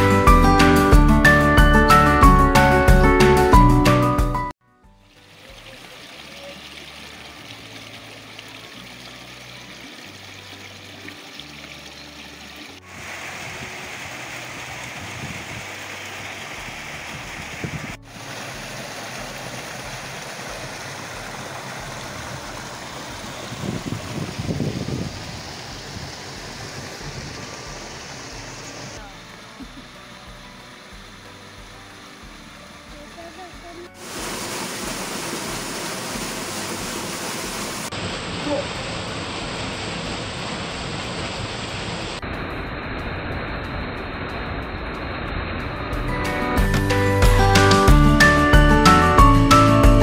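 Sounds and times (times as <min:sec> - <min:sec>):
stream and waterfall rushing over rocks: 0:05.1 - 0:47.9.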